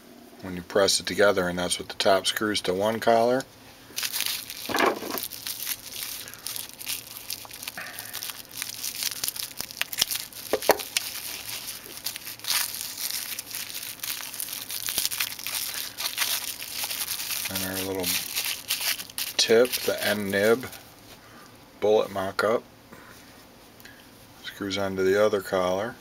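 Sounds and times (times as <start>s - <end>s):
plastic bag crinkling: 3.9s - 20.8s.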